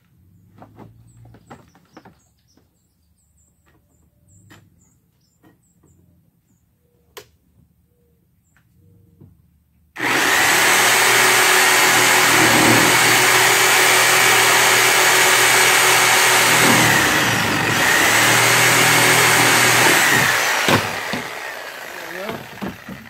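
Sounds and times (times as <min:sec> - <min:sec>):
reciprocating saw cutting pipe: 0:10.0 - 0:23.0.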